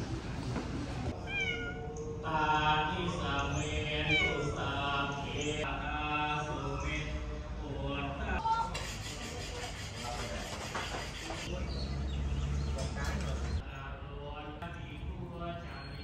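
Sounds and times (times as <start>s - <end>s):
cat meowing: 1.2s - 2.0s, 4.0s - 4.6s.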